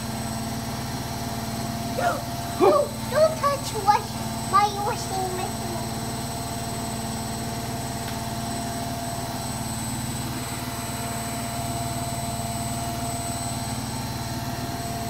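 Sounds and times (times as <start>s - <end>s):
washing machine droning: 0.0s - 15.0s.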